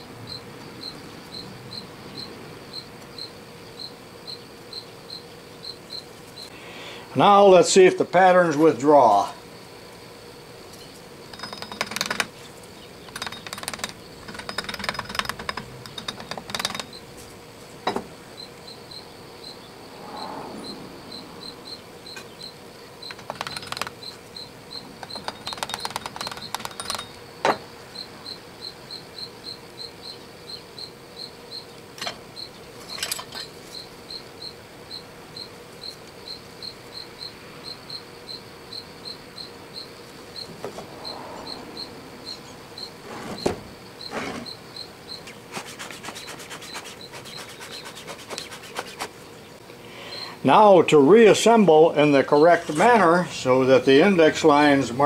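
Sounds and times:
metal tools clicking and scraping: 0:11.3 - 0:12.4, 0:13.0 - 0:17.0, 0:23.1 - 0:24.0, 0:25.0 - 0:27.2, 0:32.8 - 0:33.6.

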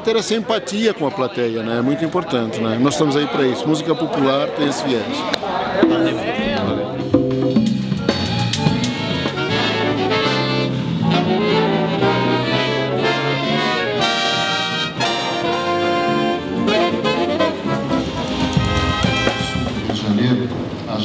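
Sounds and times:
big band jazz: 0:05.8 - 0:20.2.

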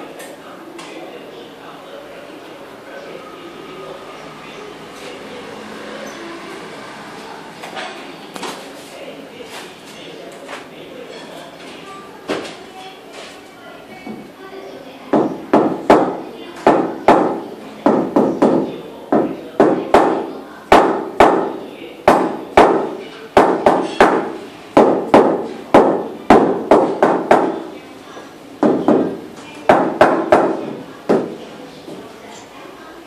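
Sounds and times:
mallet knocking on floor tile: 0:15.2 - 0:27.6.

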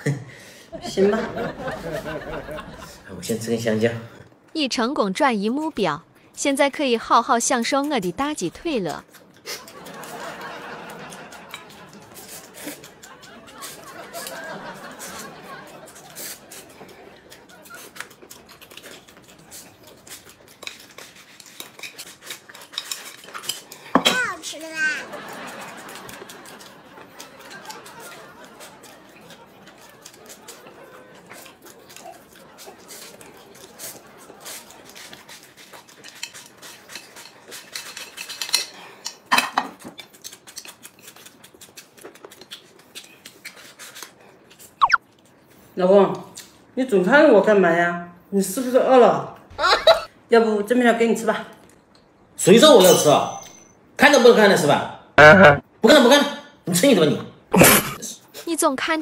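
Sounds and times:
noodles slurped and chewed: 0:08.9 - 0:10.0, 0:11.0 - 0:14.4, 0:15.8 - 0:24.4, 0:25.5 - 0:45.7
chopsticks clinking on ceramic bowls: 0:52.7 - 0:53.6.

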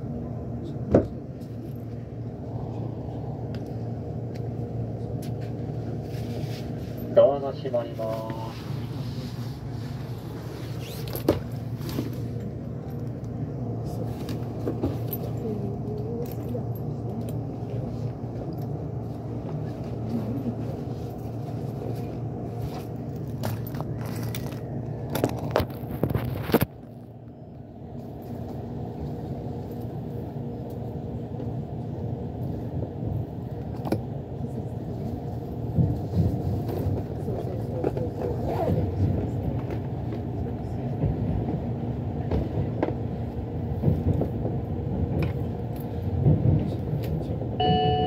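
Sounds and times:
train interior hum: 0:00.0 - 0:48.0
train clicks and knocks: 0:14.2 - 0:26.8, 0:35.2 - 0:48.0.

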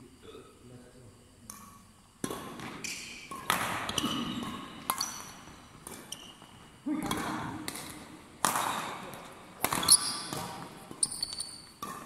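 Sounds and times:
rackets striking shuttlecock: 0:01.5 - 0:12.0.

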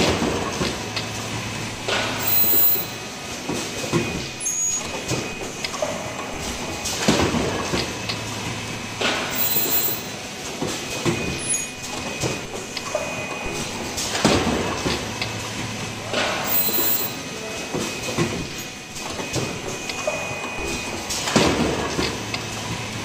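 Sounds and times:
sharp machine clacks: 0:01.8 - 0:03.0, 0:09.0 - 0:10.2, 0:16.2 - 0:17.2.

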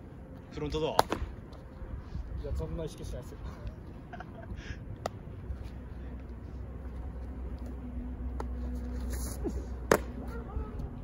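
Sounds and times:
low steady rumble: 0:00.0 - 0:11.0
baseball smacking into mitt: 0:01.0 - 0:01.3, 0:09.9 - 0:10.1.

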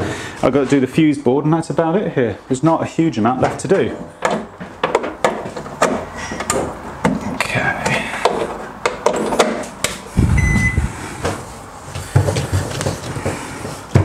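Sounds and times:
short high beep: 0:10.4 - 0:10.9.

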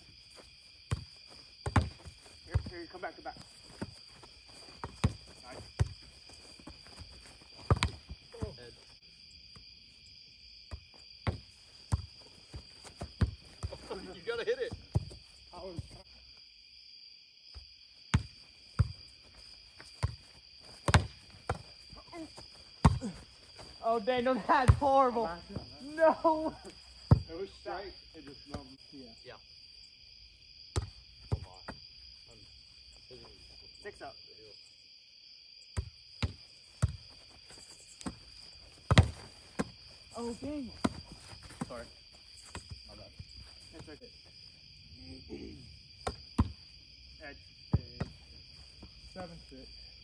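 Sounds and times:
crickets chirping: 0:00.0 - 0:50.0
ball slaps and thuds: 0:00.9 - 0:02.0, 0:07.6 - 0:08.6, 0:20.8 - 0:21.7, 0:22.8 - 0:23.1, 0:38.8 - 0:39.8.

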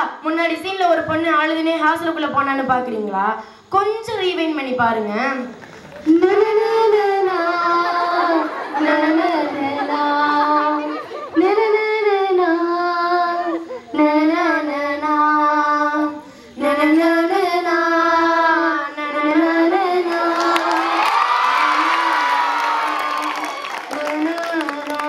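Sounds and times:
woman singing: 0:06.1 - 0:22.2, 0:22.8 - 0:25.0
audience clapping and cheering: 0:20.1 - 0:25.0.

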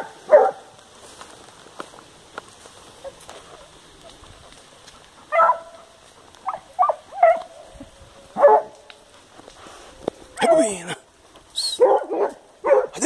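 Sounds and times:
hound yelping barks: 0:00.0 - 0:00.7, 0:05.2 - 0:09.0, 0:10.4 - 0:10.9, 0:11.7 - 0:13.0.

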